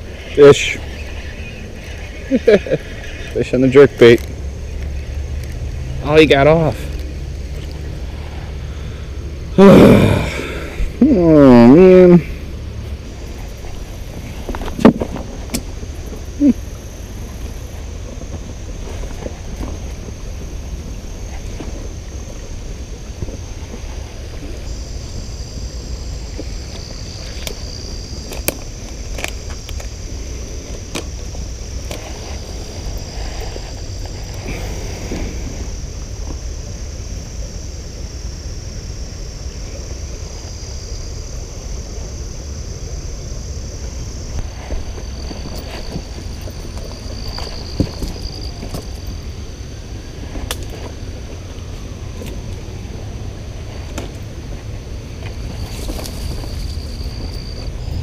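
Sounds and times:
insects droning: 0:00.0 - 0:58.0
wind rumble on microphone: 0:11.9 - 0:58.0.

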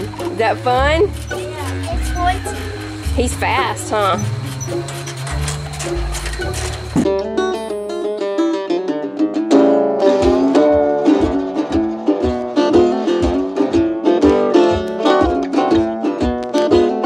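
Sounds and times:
steady beat: 0:00.0 - 0:07.7, 0:10.1 - 0:17.0
plucked strings melody: 0:00.0 - 0:17.0.

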